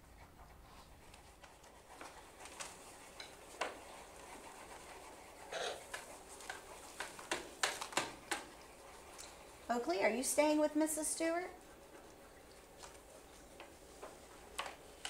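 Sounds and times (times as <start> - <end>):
crayons tapping on a tabletop: 5.9 - 8.5.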